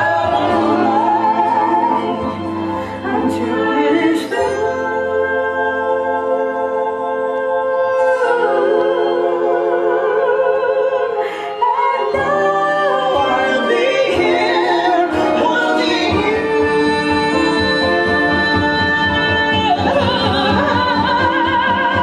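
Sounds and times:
orchestral accompaniment: 0:00.0 - 0:22.0
woman singing operatically: 0:00.0 - 0:22.0
man singing operatically: 0:13.2 - 0:22.0.

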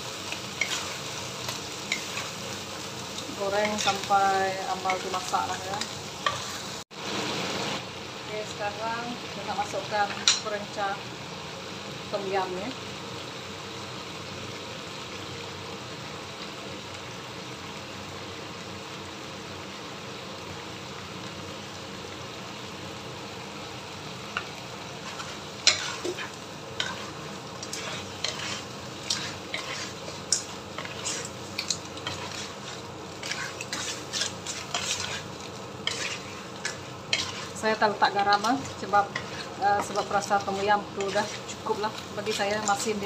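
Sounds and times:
clams sizzling in hot oil: 0:00.0 - 0:43.0
spatula clacking and scraping pan: 0:00.3 - 0:02.3, 0:03.6 - 0:04.1, 0:05.8 - 0:06.7, 0:24.4 - 0:42.9.

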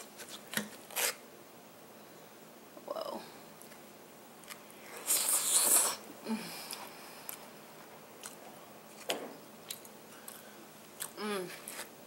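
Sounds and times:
loud slurp: 0:04.9 - 0:06.1
soft wet chewing: 0:06.6 - 0:11.9.

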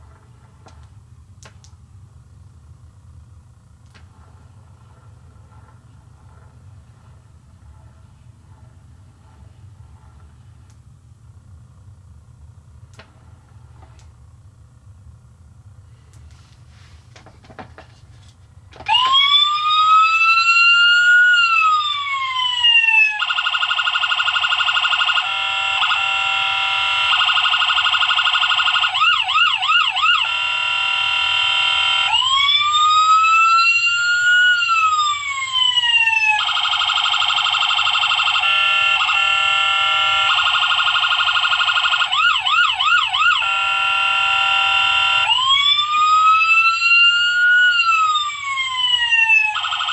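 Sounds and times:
electronic police siren: 0:18.8 - 0:49.9.

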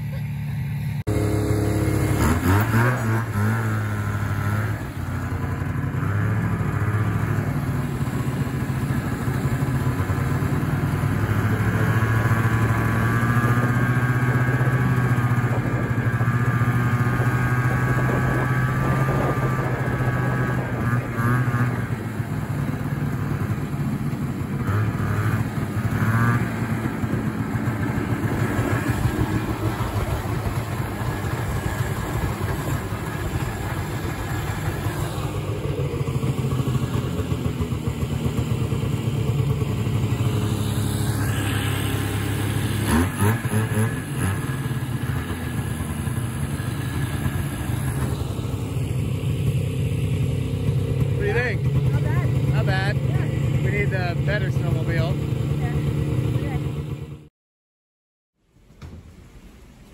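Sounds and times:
snowmobile engine revving: 0:00.0 - 0:49.8, 0:50.4 - 0:56.7.

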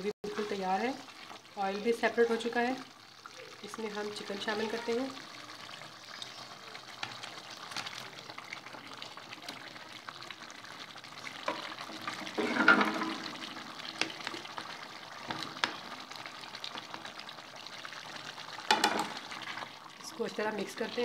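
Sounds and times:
gravy bubbling and sizzling: 0:00.0 - 0:21.0
food splashing into hot gravy: 0:05.4 - 0:19.9.

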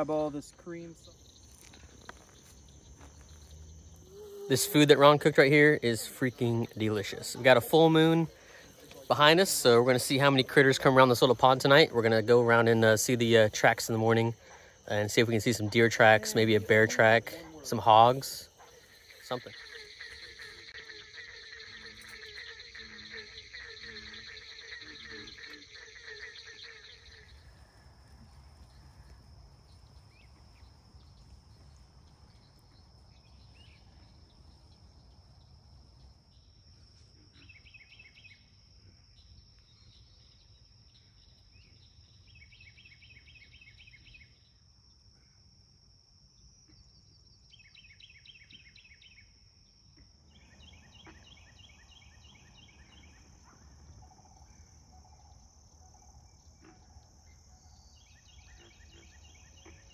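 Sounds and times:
high-pitched insect drone: 0:00.0 - 0:36.6.

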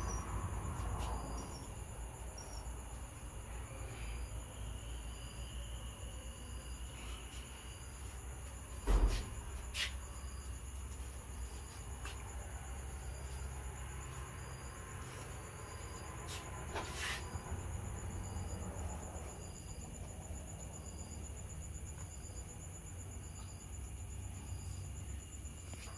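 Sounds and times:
crickets trilling: 0:00.0 - 0:25.9
short insect chirp: 0:00.0 - 0:25.9
low thump: 0:08.8 - 0:09.7.

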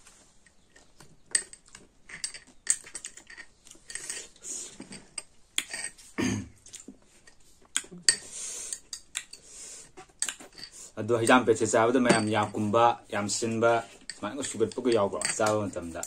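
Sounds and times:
cutlery scraping a glass bowl: 0:01.3 - 0:06.0, 0:10.2 - 0:10.9
glass bowl thump: 0:12.0 - 0:12.6.

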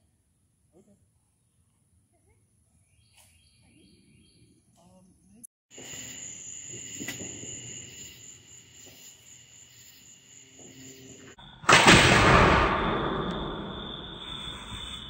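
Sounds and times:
insects trilling: 0:05.7 - 0:11.7, 0:12.8 - 0:15.0
loud firework launch bang: 0:11.6 - 0:15.0.

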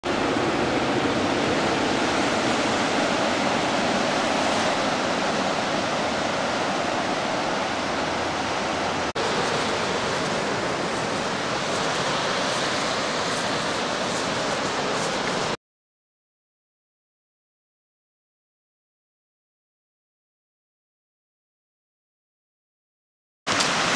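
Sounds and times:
waves breaking on beach: 0:00.0 - 0:15.6, 0:23.5 - 0:23.9.

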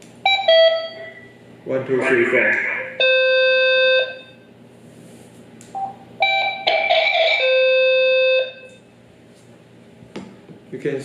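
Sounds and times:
steady radio beep: 0:02.0 - 0:04.3.

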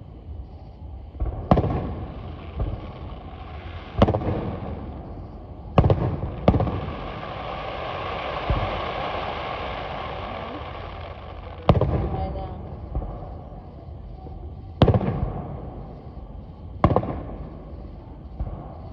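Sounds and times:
crackle of falling firework stars: 0:00.0 - 0:18.9
firework shells bursting: 0:01.2 - 0:13.2.

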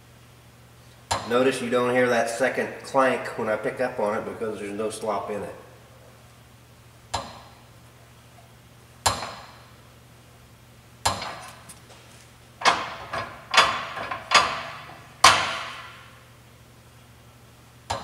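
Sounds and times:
metal linkage arms clanking: 0:12.6 - 0:16.0.

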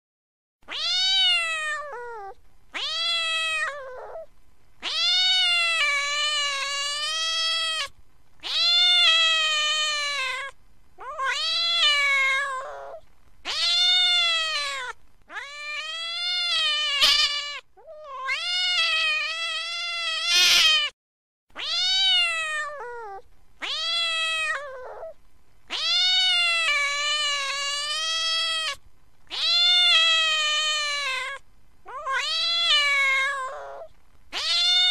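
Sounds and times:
cat yowling angrily: 0:00.7 - 0:20.9, 0:21.6 - 0:34.9.

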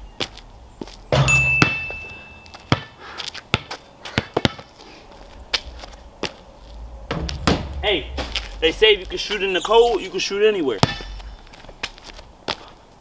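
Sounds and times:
basketball clanging on metal hoop: 0:01.1 - 0:02.9, 0:10.8 - 0:11.2
basketball bouncing on concrete: 0:01.1 - 0:04.7, 0:07.1 - 0:08.4, 0:10.8 - 0:11.3.

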